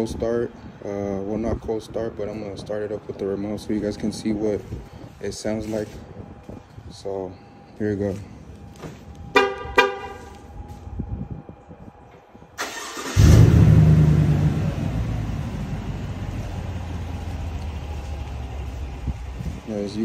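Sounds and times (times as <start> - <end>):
truck engine idling: 12.6 - 20.0.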